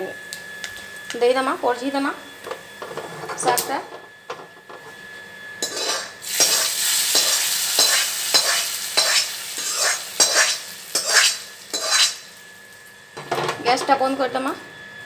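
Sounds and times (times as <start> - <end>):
utensil stirring and scraping: 5.6 - 12.2
hot oil sizzling: 5.6 - 13.1.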